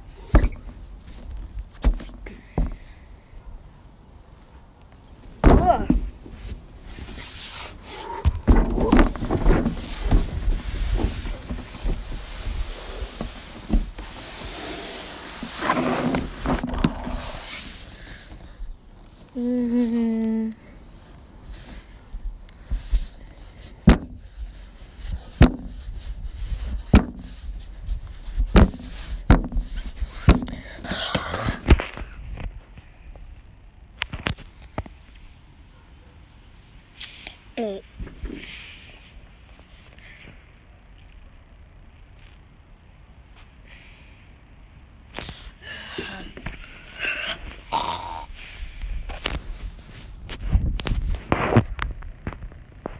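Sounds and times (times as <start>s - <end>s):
wind hiss on microphone: 9.8s - 18.8s, 22.6s - 30.3s
child humming: 19.3s - 20.6s.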